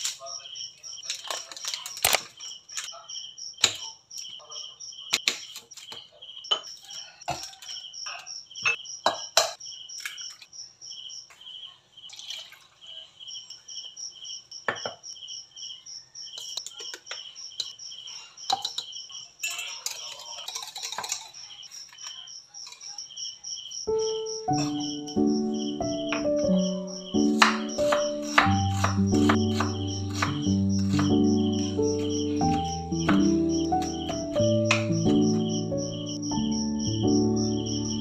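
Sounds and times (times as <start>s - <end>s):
crickets chirping: 0.0s - 38.0s
kitchenware clinking and knocking: 1.0s - 2.9s, 5.1s - 10.4s, 14.7s - 15.0s, 18.5s - 22.9s, 24.5s - 25.2s, 27.2s - 35.6s.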